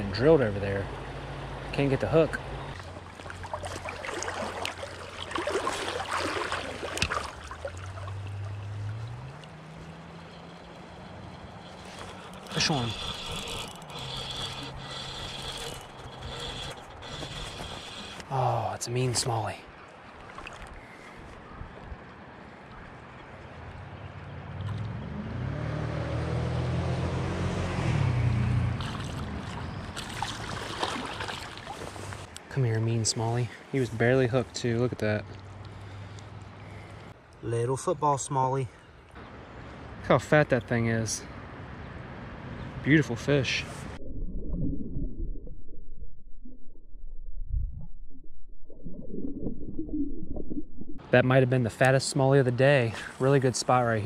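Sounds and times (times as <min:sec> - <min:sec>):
fish splashing at surface: 0:02.8 - 0:09.0, 0:28.8 - 0:32.3
creek water rushing: 0:02.8 - 0:20.8, 0:28.8 - 0:32.4
low humming drone: 0:08.0 - 0:18.4
low hum: 0:43.7 - 0:51.2.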